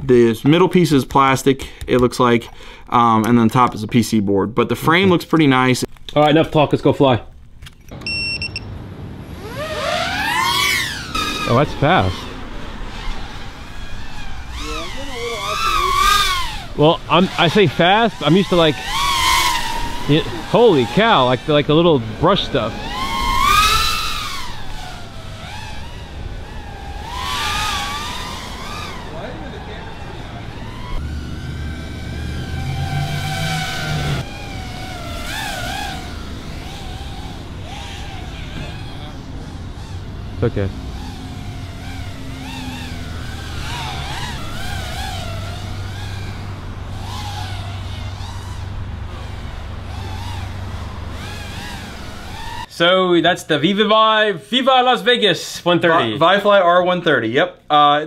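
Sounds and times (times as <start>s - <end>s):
steady low hum: 7.3s - 52.8s
quadcopter motors whining: 7.9s - 52.8s, 55.8s - 56.4s.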